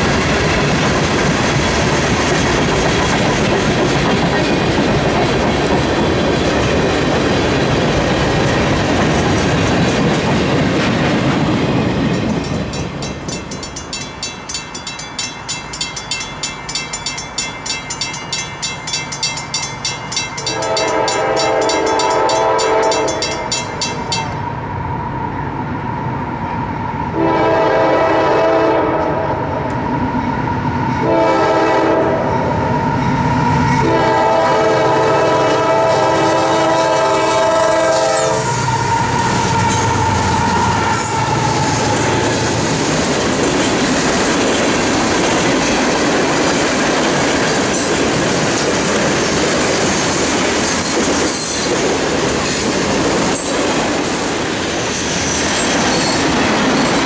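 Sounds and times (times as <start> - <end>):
high ringing tone: 12.7 - 24.4
locomotive horn blasts: 20.4 - 23.4, 27.2 - 29.4, 31.0 - 32.4, 33.8 - 38.6.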